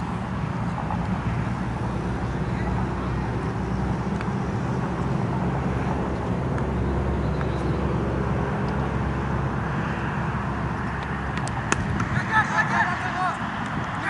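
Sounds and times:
wind buffeting microphone: 10.2s - 14.0s.

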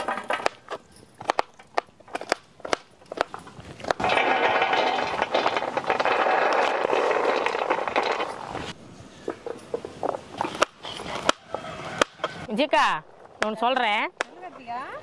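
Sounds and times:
rustling clatter: 3.3s - 8.8s.

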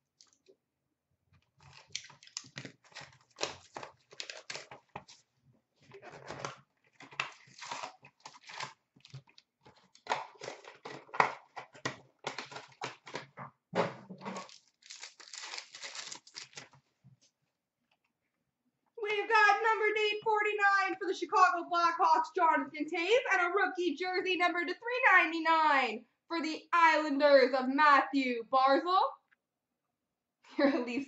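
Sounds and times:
plastic wrap crackling and tearing: 1.4s - 13.4s, 14.2s - 16.8s
card packs handled: 1.6s - 13.4s, 14.2s - 16.8s.

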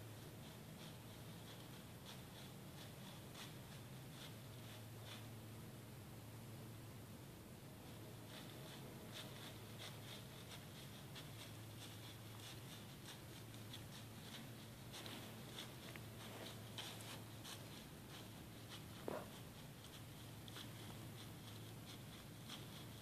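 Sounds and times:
steady low hum: 0.0s - 23.0s
crunching in dry leaves: 8.2s - 23.0s.

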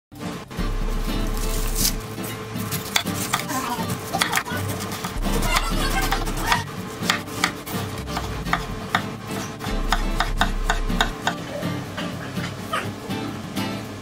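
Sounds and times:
knife rasping through fruit: 2.6s - 8.7s.

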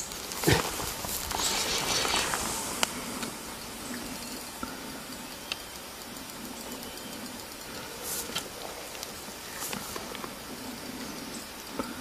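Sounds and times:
outdoor background hiss: 0.0s - 12.0s.

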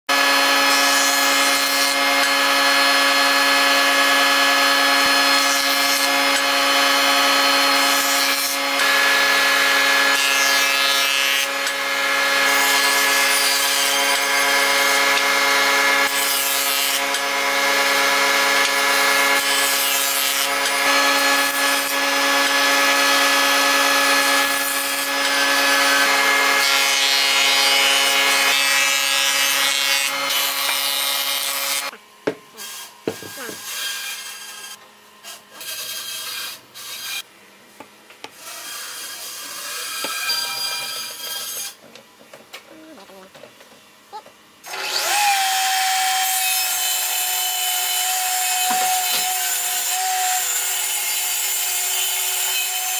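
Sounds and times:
jointer-planer machine whine: 0.1s - 10.2s, 11.3s - 31.9s
planer cutting boards: 0.1s - 42.0s, 44.2s - 52.9s.

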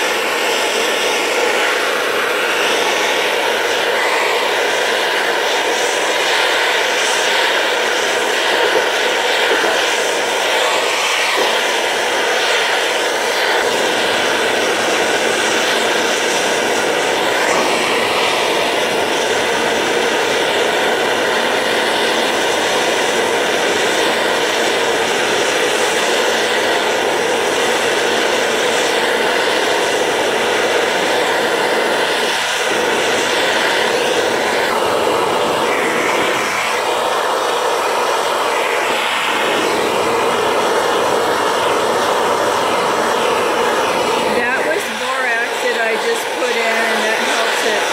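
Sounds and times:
torch flame hissing: 0.0s - 47.9s.

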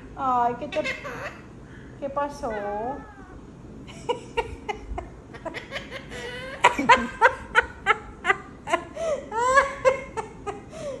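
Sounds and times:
woman laughing: 3.9s - 10.8s.

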